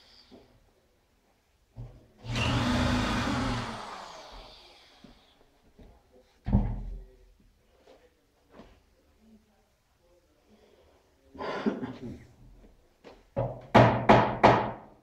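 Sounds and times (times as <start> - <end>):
power tool motor spinning: 2.2 - 4.7.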